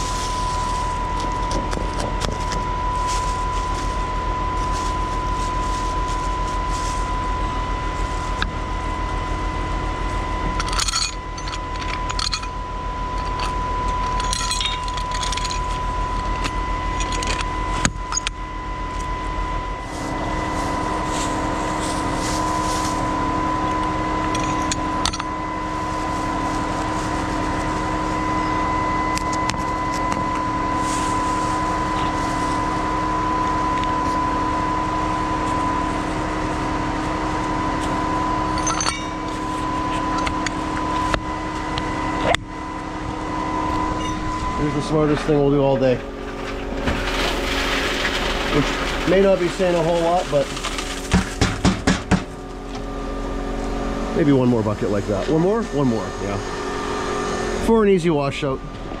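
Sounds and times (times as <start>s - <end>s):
diesel truck engine running: 0.0s - 59.0s
metallic clinking and rattling: 10.5s - 18.4s, 24.2s - 25.3s, 38.6s - 39.4s.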